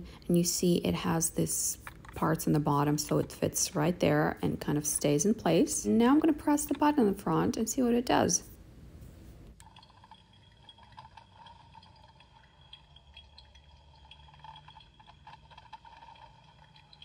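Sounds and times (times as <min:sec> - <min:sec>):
toy coffee maker electronic noises: 0:09.6 - 0:17.0.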